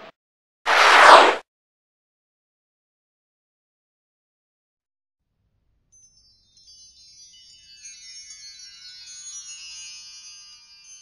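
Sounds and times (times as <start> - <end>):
shimmering chime music: 5.9 - 11.0.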